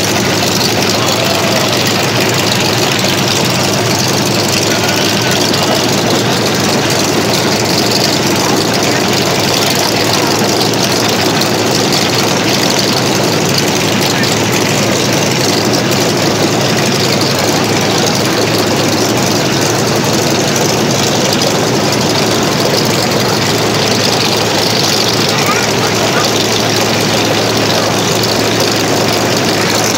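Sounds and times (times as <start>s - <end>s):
aircraft engine running steadily: 0.0s - 29.9s.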